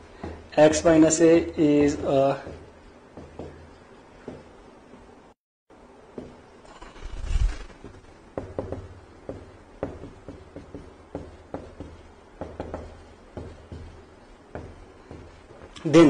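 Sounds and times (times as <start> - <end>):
pen tapping and scratching on paper: 8.4 - 15.8.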